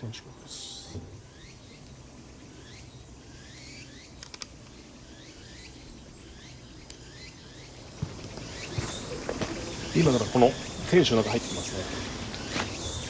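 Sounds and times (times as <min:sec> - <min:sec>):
faint high pulsing buzz: 0:00.0 - 0:13.0
quick clicks: 0:04.2 - 0:04.8.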